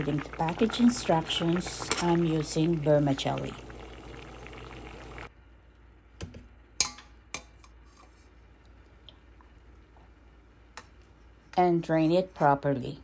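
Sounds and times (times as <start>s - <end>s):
steel pot and utensils clicking: 1.2s - 2.5s.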